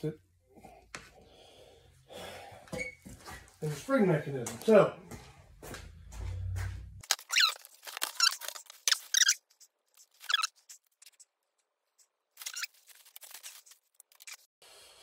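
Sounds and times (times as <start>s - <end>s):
cardboard and plastic crinkling: 7.0s - 9.2s, 12.4s - 14.4s.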